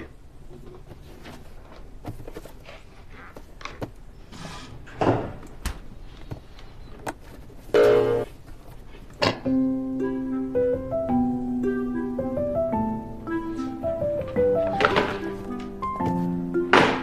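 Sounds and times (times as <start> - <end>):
cardboard box rustling: 0.8 - 4.0
footsteps: 13.5 - 17.0.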